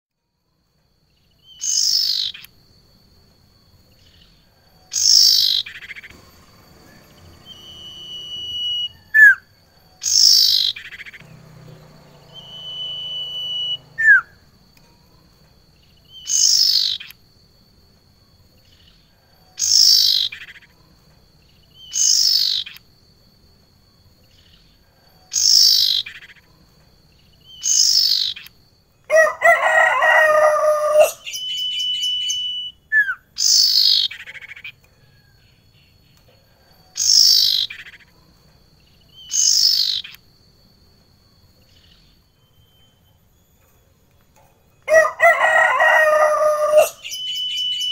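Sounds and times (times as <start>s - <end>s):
birds calling with down-slurred calls: 1.2s - 2.7s, 3.8s - 17.8s, 18.4s - 43.7s, 44.8s - 47.9s
bird whistles and chirps: 1.4s - 2.5s, 4.2s - 11.2s, 12.2s - 14.5s, 16.0s - 17.2s, 21.7s - 22.8s, 27.4s - 28.6s, 30.1s - 34.8s, 36.8s - 38.1s, 39.1s - 40.3s, 45.9s - 47.9s
rooster crowing: 4.5s - 14.6s, 19.0s - 20.3s, 29.1s - 32.4s, 34.8s - 35.7s, 44.8s - 47.9s.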